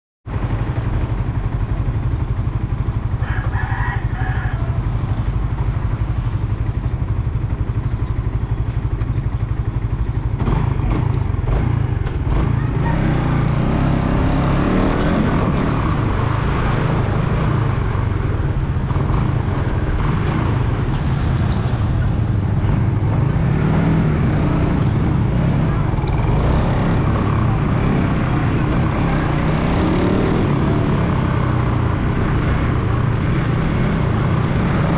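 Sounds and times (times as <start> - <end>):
motorcycle engine rumbling: 0.3 - 34.9.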